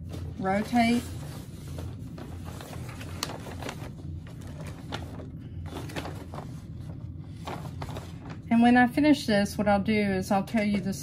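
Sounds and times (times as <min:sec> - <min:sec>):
soft rustling of stabilizer sheet: 0:00.0 - 0:08.5
steady low hum: 0:00.0 - 0:11.0.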